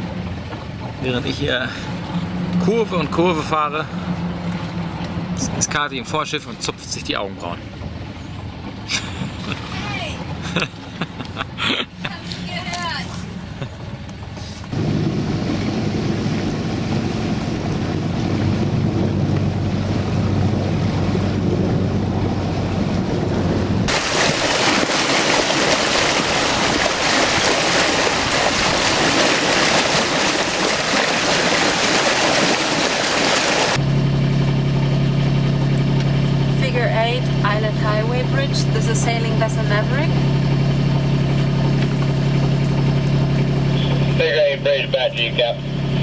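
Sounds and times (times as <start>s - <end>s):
bow wave splashing along hull: 0.0s - 46.0s
diesel engine running: 0.0s - 46.0s
wind on microphone: 14.8s - 30.7s.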